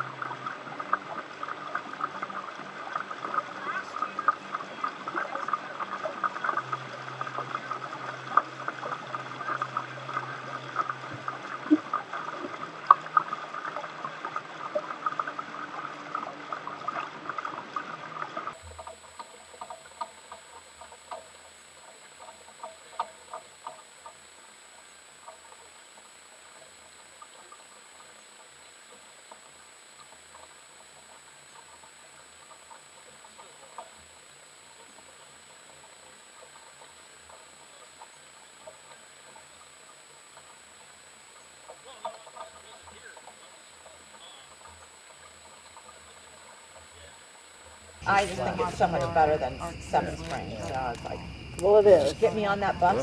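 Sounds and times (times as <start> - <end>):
small ticks: 0.0 - 48.1
water splashing against hulls: 0.0 - 53.0.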